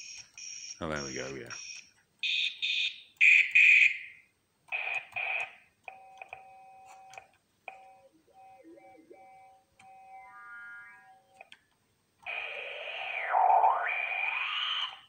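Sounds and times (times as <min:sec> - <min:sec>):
buzzy electronic tone: 0:08.5 - 0:11.4, 0:12.3 - 0:15.0
clicks: 0:11.3 - 0:12.4
filtered hiss bursts: 0:11.7 - 0:15.0.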